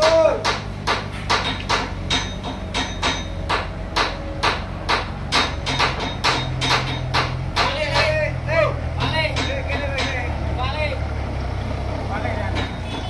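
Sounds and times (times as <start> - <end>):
rapid hammering: 0.0 - 10.4, 12.3 - 13.0
forklift engine humming: 0.0 - 13.0.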